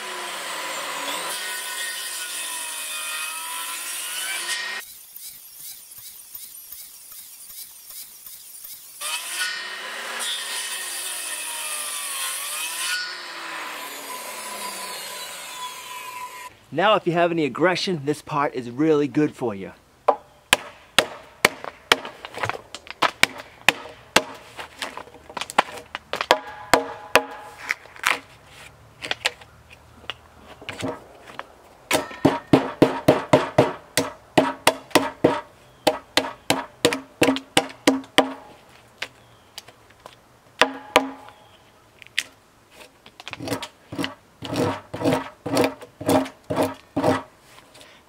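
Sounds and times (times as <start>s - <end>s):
pitched ring from wooden beam: 31.9s - 32.7s
hammer knocking on wood: 31.9s - 38.4s.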